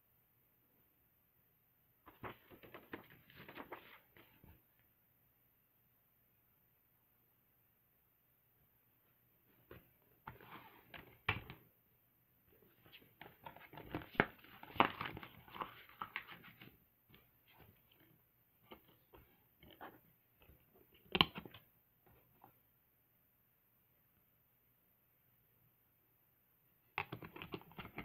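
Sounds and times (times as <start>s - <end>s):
paper booklet rustling: 2.1s - 4.6s, 12.6s - 21.6s.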